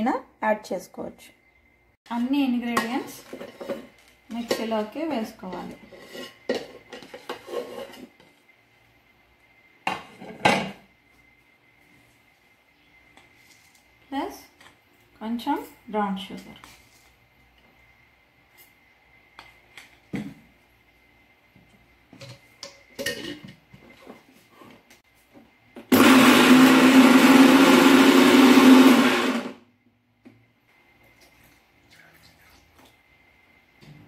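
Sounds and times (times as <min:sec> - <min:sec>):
mixer grinder motor running: 0:25.9 - 0:29.6.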